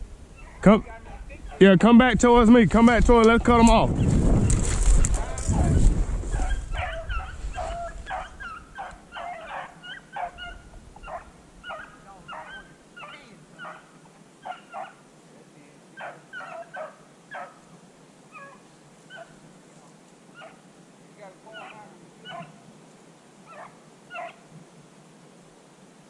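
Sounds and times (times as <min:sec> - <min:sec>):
dogs yelping barks: 0:00.4 - 0:00.6, 0:06.3 - 0:15.0, 0:16.0 - 0:17.6, 0:18.3 - 0:19.4, 0:20.4 - 0:20.6, 0:21.6 - 0:22.6, 0:23.5 - 0:24.4.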